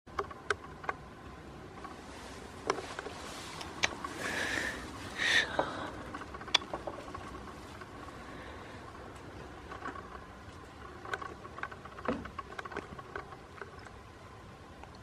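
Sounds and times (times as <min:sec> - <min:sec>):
rustling: 0:01.7 - 0:14.2
short breathy hissing: 0:04.2 - 0:06.0.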